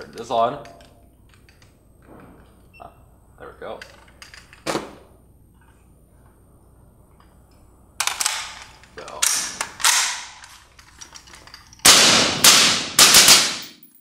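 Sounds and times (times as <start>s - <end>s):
suppressed rifle shots echoing: 11.9s - 13.6s.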